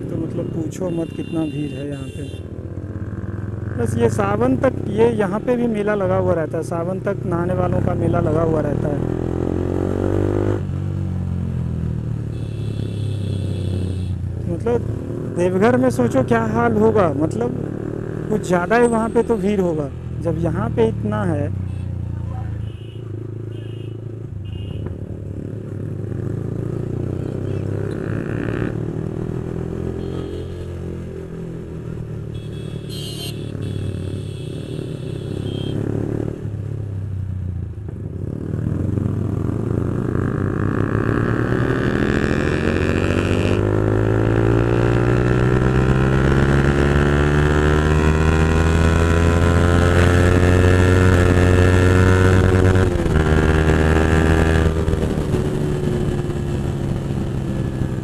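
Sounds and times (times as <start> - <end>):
motorcycle engine accelerating: 7.5 - 12.3, 25.0 - 32.2, 34.8 - 58.0.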